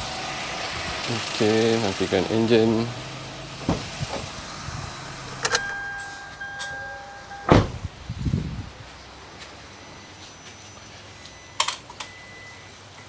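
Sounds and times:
car engine idling: 0.0 - 10.0
car door shutting: 3.6 - 4.5, 5.3 - 8.0
steady beep: 5.4 - 7.7, 8.8 - 13.0.

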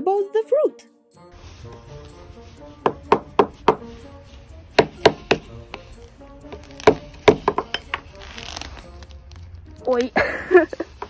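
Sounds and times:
background music: 0.0 - 11.0
frozen banana knocking on hard surface: 4.8 - 5.6, 6.5 - 8.0.

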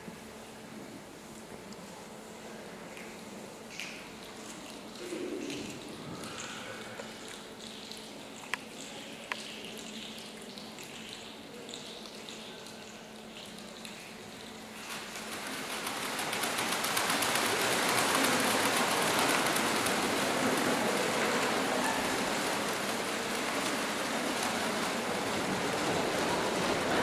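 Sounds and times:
audience applauding: 16.0 - 27.0.

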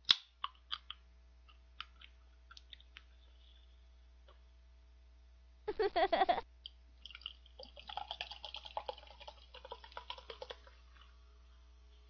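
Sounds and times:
drink pouring into a mug: 7.0 - 11.2.

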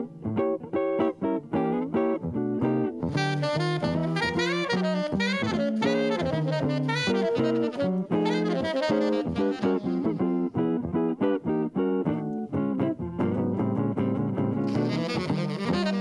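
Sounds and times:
electric guitar accompaniment: 0.0 - 16.0
tenor saxophone jazz line: 0.8 - 11.1, 14.6 - 16.0.

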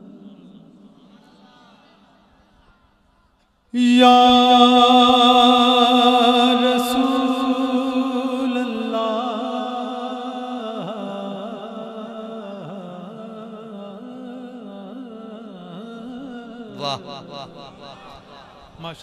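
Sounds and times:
man singing unaccompanied: 3.7 - 18.4.

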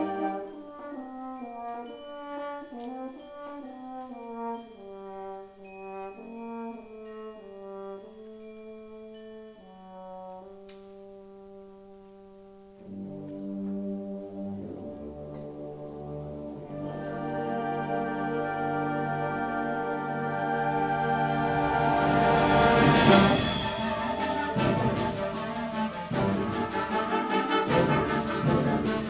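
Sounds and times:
concert band playing slowly: 12.9 - 29.0.

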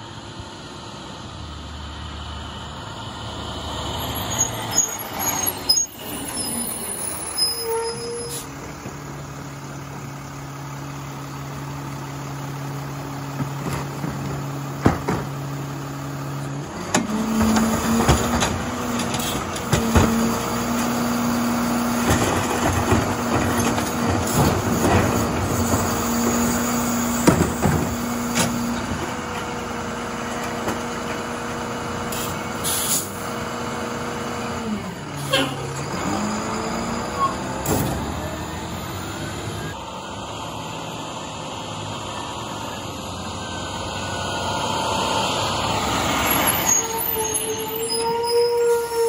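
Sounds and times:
diesel engine idling: 6.6 - 46.8
hydraulic cart tipper: 16.4 - 31.4.

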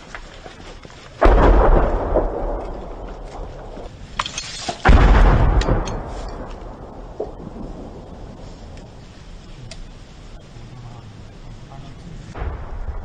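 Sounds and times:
heavy explosions: 1.2 - 4.2, 4.8 - 10.3, 12.3 - 13.0.

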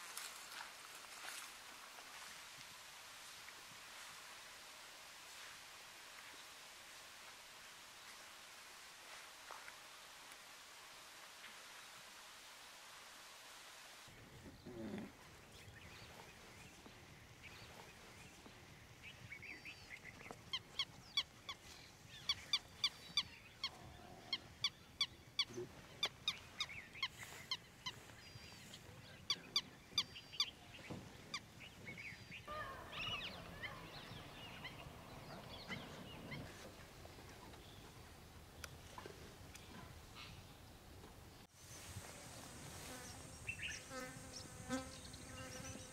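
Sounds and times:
soft bird chatter: 41.7 - 45.9.

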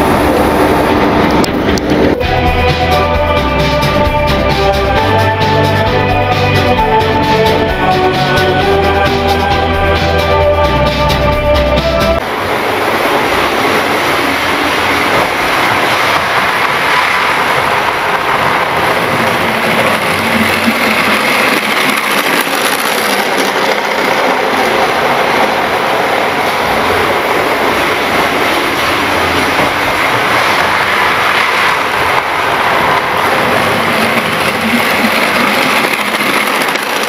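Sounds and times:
model train whirring on track: 12.2 - 37.0.

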